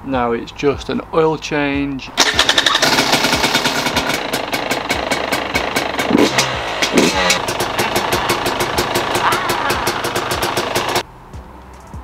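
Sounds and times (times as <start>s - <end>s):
dirt bike engine starting and running: 2.2s - 11.0s.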